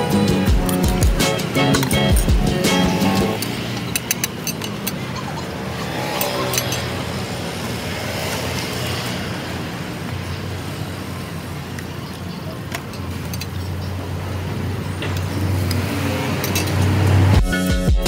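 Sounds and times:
road traffic hum: 0.0s - 18.0s
metal spatulas clicking on griddle: 0.7s - 5.3s, 5.9s - 6.9s.

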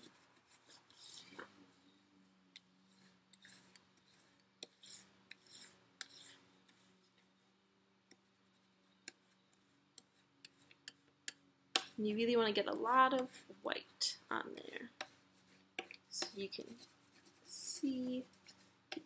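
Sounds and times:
crayon scratching on paper: 2.8s - 7.5s, 12.8s - 19.0s.

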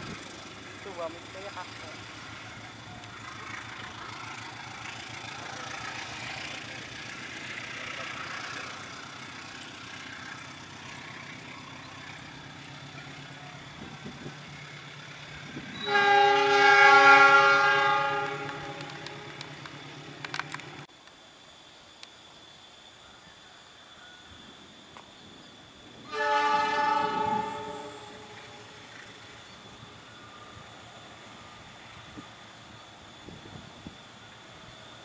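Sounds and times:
train rolling along track: 0.0s - 35.0s
locomotive horn blast: 15.7s - 19.6s, 26.0s - 28.8s.

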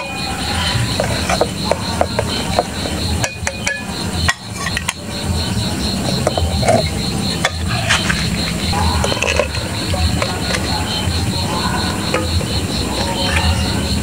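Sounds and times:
metal spoon scraping steel pot: 0.0s - 5.0s, 6.0s - 10.8s
crickets chirping: 0.0s - 14.0s.

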